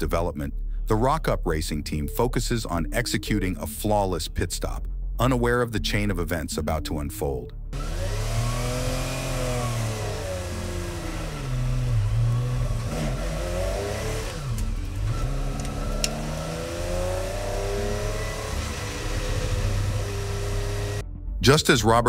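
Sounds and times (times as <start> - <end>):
car engine revving: 7.7 - 21.0.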